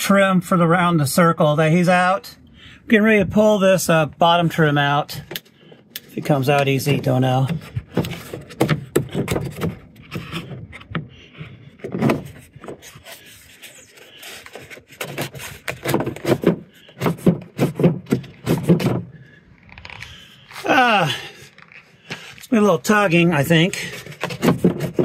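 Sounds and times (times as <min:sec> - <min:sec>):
plastic trim rubbing and scraping: 0:05.2 - 0:25.0
plastic fasteners clicking: 0:05.3 - 0:19.0, 0:23.9 - 0:25.0.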